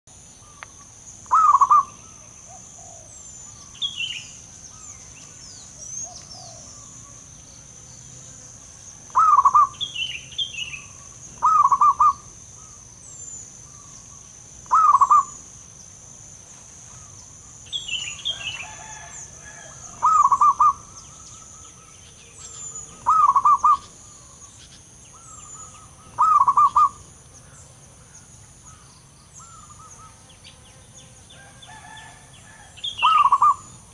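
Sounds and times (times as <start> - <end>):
dove cooing: 0.7 - 3.7, 5.8 - 7.2, 9.0 - 12.8, 14.6 - 15.4, 18.3 - 24.4, 25.2 - 27.1, 31.7 - 33.8.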